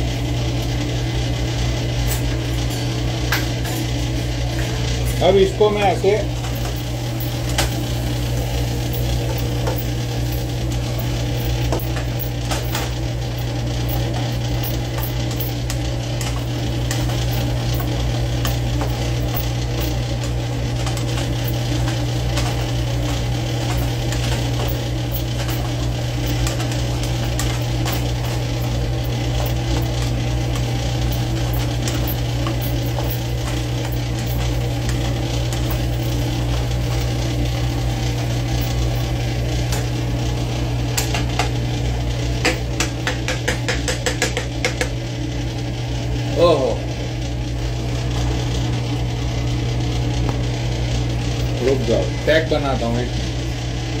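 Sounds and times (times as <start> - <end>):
food sizzling in a frying pan: 6.3 - 14.5.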